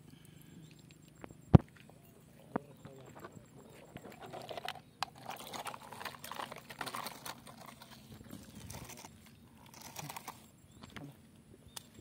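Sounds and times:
toy truck crunching through mud: 4.2s - 10.5s.

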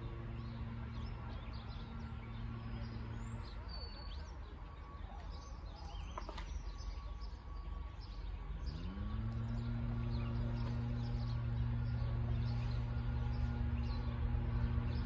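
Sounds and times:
rising low hum: 0.0s - 4.0s, 7.6s - 15.0s
low outdoor rumble: 0.0s - 15.0s
small birds chirping: 0.0s - 15.0s.

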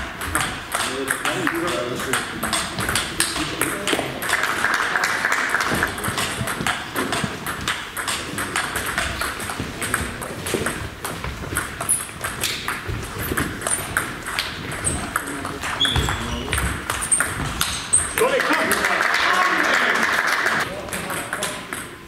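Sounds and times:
distant table tennis clicks: 0.1s - 18.8s
table tennis ball clicking: 0.2s - 4.1s, 5.6s - 18.2s.

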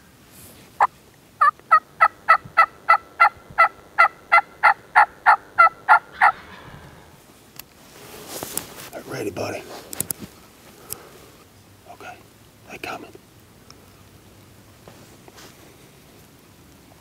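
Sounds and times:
turkey hen yelping: 1.4s - 7.2s.

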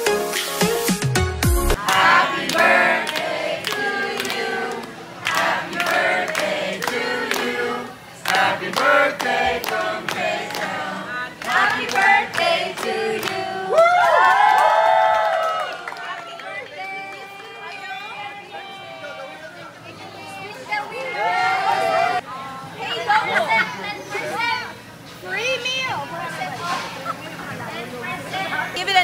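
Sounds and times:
clapping in a steady beat: 1.7s - 7.5s, 8.2s - 10.8s, 11.4s - 17.7s
group singing: 1.7s - 13.8s
voices cheering: 13.6s - 22.2s.

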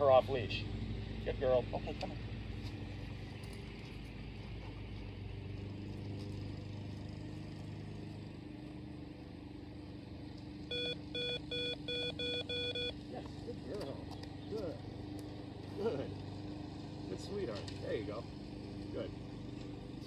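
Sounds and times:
low engine hum: 0.0s - 20.0s
short electronic beeps: 10.7s - 13.0s.

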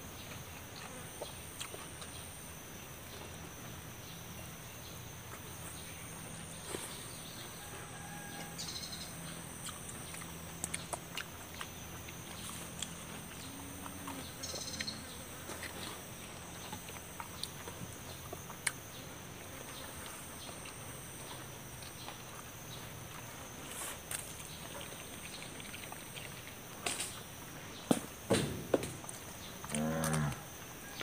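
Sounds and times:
chewing: 0.5s - 2.2s, 9.2s - 27.2s
bird chirps: 13.3s - 15.2s.

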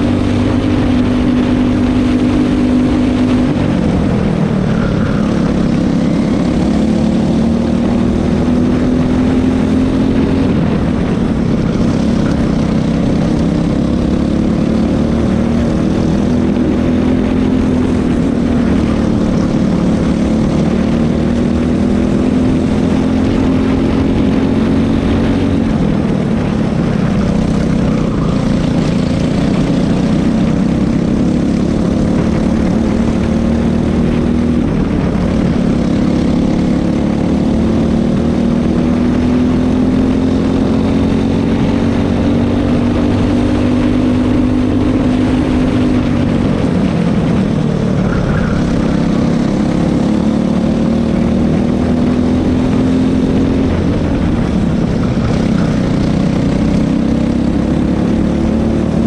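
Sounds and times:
kart engine accelerating: 0.0s - 59.0s.

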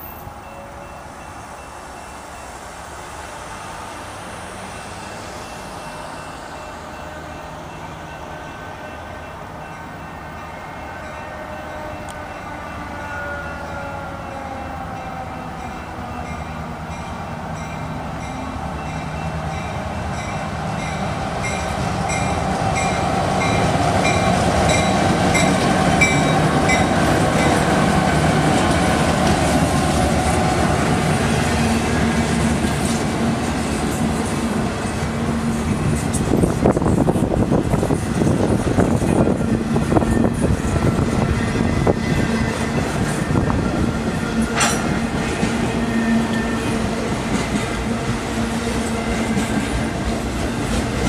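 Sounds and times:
crossing bell ringing: 0.0s - 2.6s, 4.6s - 27.8s, 37.8s - 46.9s
diesel locomotives passing: 0.0s - 51.0s
train wheels clattering on rail joints: 31.2s - 51.0s.

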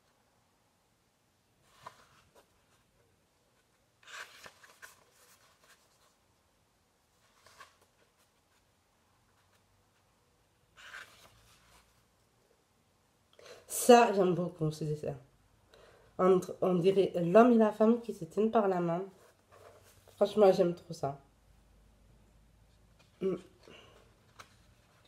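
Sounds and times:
paper pages turning: 1.6s - 2.9s, 3.5s - 6.3s, 7.1s - 10.1s, 10.8s - 12.1s, 24.0s - 25.0s.

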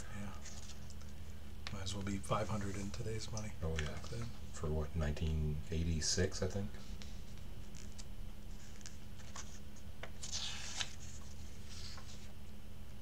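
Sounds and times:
steady low hum: 0.0s - 13.0s
comic book pages turning: 7.0s - 12.4s.

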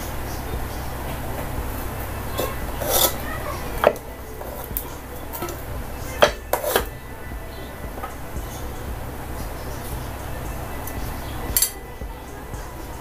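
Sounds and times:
steady low hum: 0.0s - 13.0s
dishware clinking and scraping: 2.3s - 7.0s.

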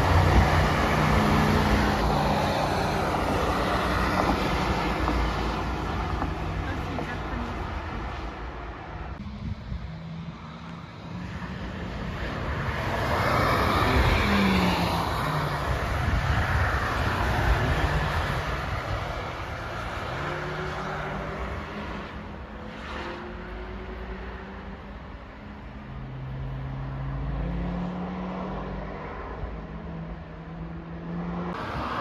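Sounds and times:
car engine steady rising note: 0.0s - 6.8s
sports cars passing by: 0.0s - 32.0s.

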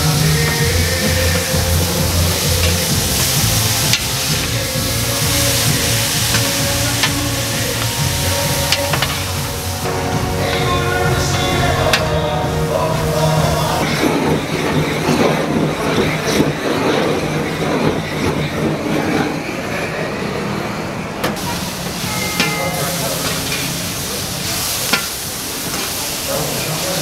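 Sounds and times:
food sizzling on a griddle: 0.0s - 9.8s, 21.4s - 27.0s
gas blowtorch hissing: 0.0s - 19.2s, 21.3s - 27.0s.

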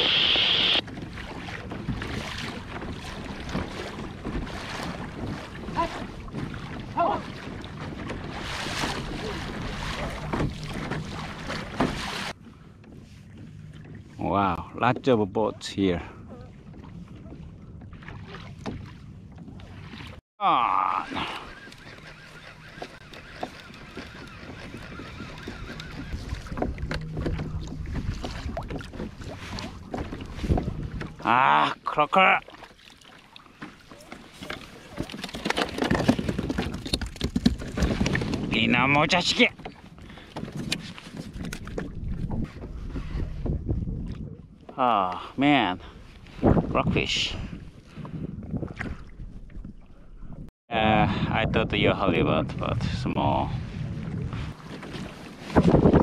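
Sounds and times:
water lapping along kayak hull: 0.0s - 56.0s
wind buffeting microphone: 1.0s - 14.8s, 22.5s - 31.3s, 34.7s - 44.8s, 45.7s - 56.0s.

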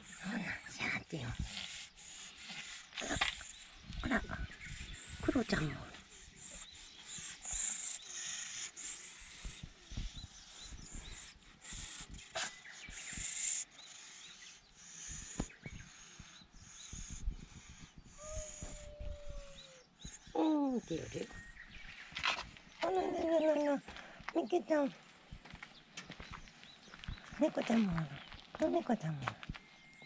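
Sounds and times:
cat moaning growl: 18.2s - 19.8s.

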